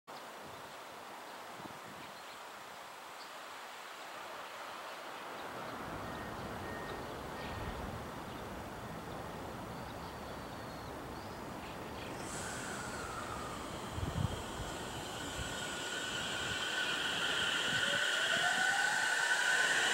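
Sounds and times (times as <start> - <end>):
electric train rumbling on rails: 11.8 - 19.9
high brake squeal: 12.0 - 19.9.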